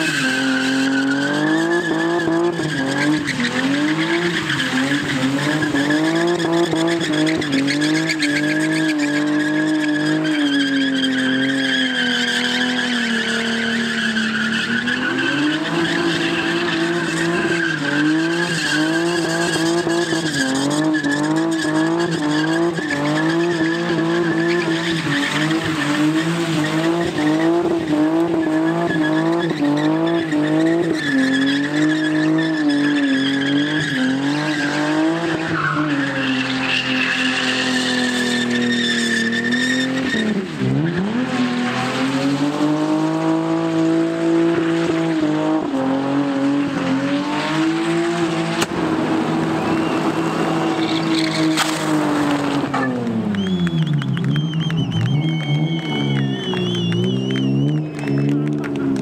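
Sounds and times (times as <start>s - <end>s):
car engine revving high: 0.0s - 59.0s
tyres squealing: 49.1s - 59.0s.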